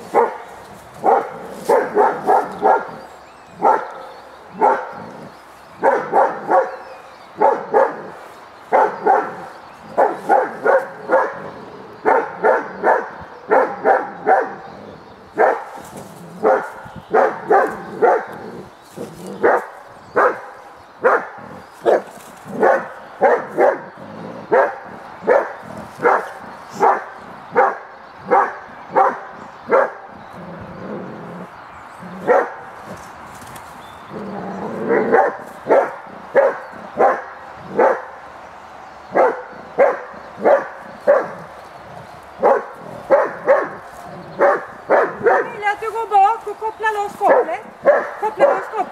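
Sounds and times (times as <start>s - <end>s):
dog barking: 0.1s - 3.0s, 3.6s - 5.0s, 5.8s - 14.6s, 15.4s - 15.8s, 16.4s - 18.4s, 19.4s - 23.9s, 24.5s - 30.0s, 32.3s - 32.6s, 34.9s - 38.1s, 39.1s - 41.4s, 42.4s - 45.6s, 47.3s - 48.9s.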